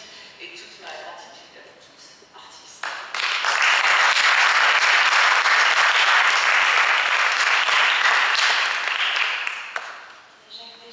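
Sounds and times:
audience applause: 3.1s - 10.0s.

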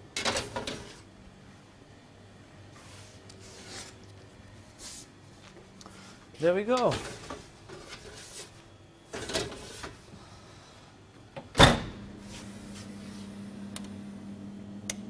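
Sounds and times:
oven fan humming: 0.0s - 15.0s
oven door banging shut: 11.6s - 12.1s.

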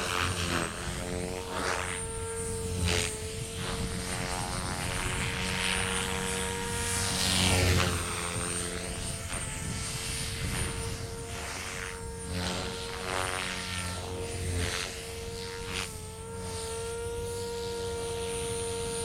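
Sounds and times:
model helicopter rotor whine: 0.0s - 19.0s.

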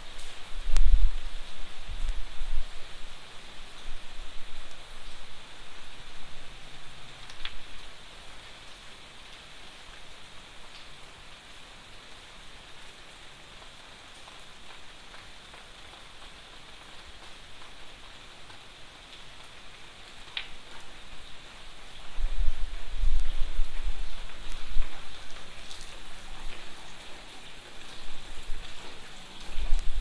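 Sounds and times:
steady rain on foliage and paving: 0.0s - 30.0s
single raindrops ticking: 7.2s - 7.9s, 20.0s - 21.3s, 23.0s - 30.0s.

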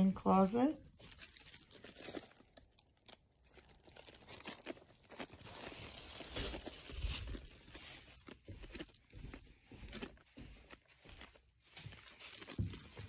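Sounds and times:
soft footsteps: 5.2s - 13.0s.

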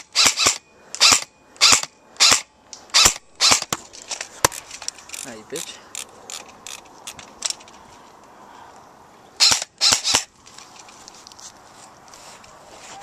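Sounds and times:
airsoft rifle shots: 0.0s - 3.8s, 9.4s - 10.3s.

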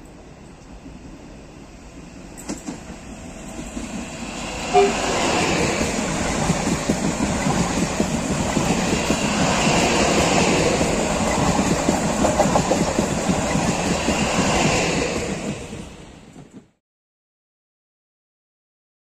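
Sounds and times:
train wheels rumbling on rails: 0.0s - 16.8s
clickety-clack over rail joints: 2.3s - 4.1s, 4.8s - 16.8s.

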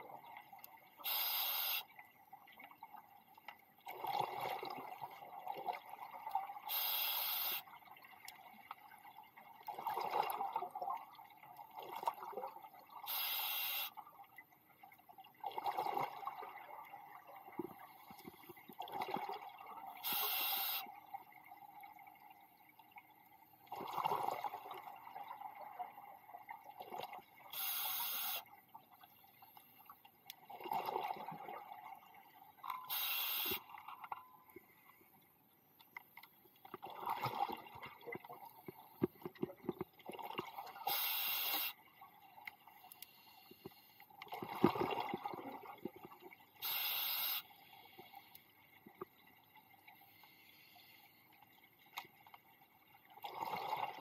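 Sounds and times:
regulator inhale hiss: 1.1s - 1.8s, 6.7s - 7.6s, 13.1s - 13.9s, 20.0s - 20.9s, 27.6s - 28.4s, 32.9s - 33.6s, 40.9s - 41.8s, 46.6s - 48.1s
exhaled bubbles gurgling: 3.9s - 6.3s, 9.7s - 13.0s, 15.4s - 17.9s, 36.8s - 38.6s, 44.2s - 46.4s, 53.2s - 54.0s.

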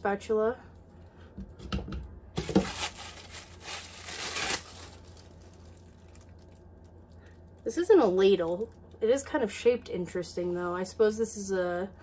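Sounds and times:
plastic packaging crinkling: 2.3s - 9.0s.

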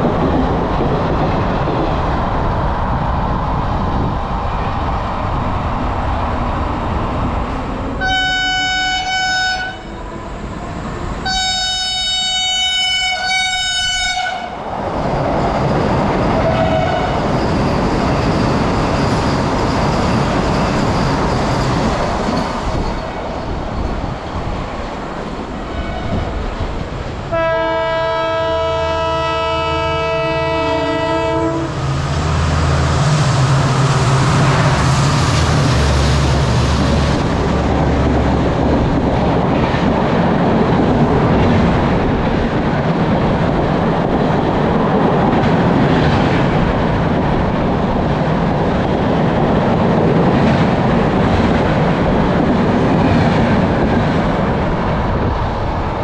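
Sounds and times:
train wheels rumbling on rail: 0.0s - 56.0s
train horn blasts: 8.0s - 10.1s, 11.2s - 14.6s, 16.6s - 17.2s, 27.3s - 31.8s.

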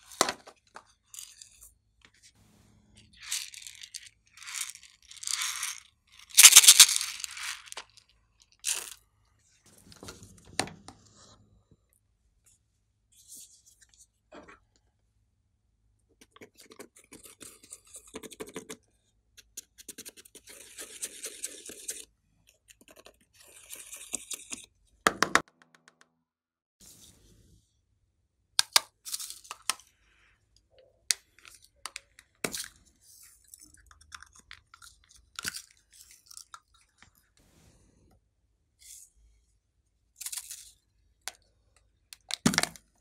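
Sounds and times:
small plastic items clicking: 4.4s - 7.9s.

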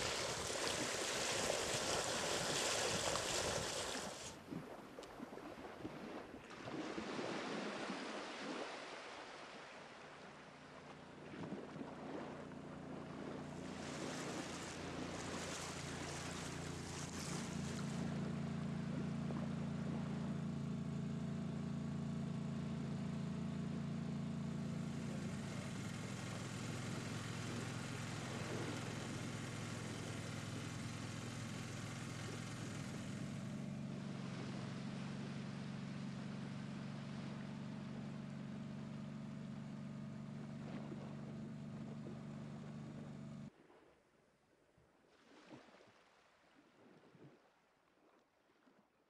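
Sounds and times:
water hissing along hull: 0.0s - 4.5s, 25.2s - 33.5s
outboard motor running: 0.0s - 43.5s.

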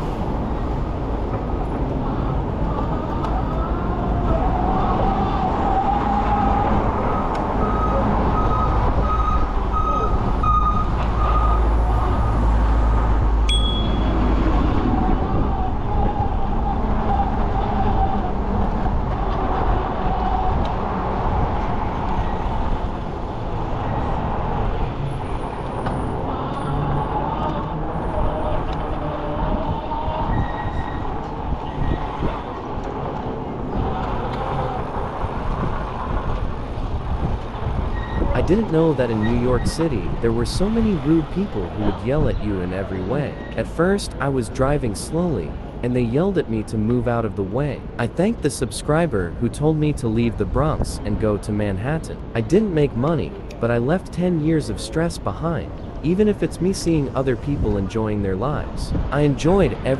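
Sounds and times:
low rumble of wind: 0.0s - 59.9s
traffic rumble: 0.0s - 59.9s
short electronic beeps: 13.5s - 14.2s.

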